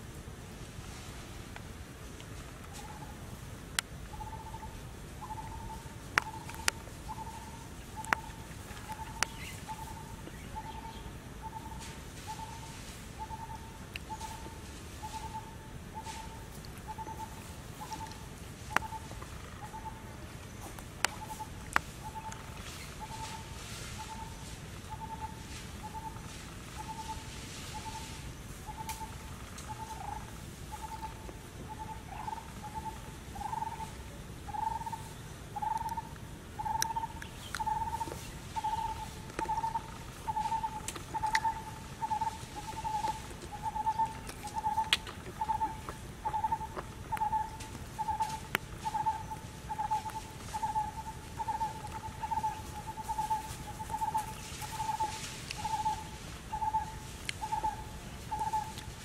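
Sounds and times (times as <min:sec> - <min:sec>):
bird hooting: 0:04.1 - 0:20.1, 0:21.1 - 0:58.8
faint clicks: 0:06.1 - 0:07.4, 0:08.0 - 0:09.9, 0:20.4 - 0:23.4, 0:38.9 - 0:49.3.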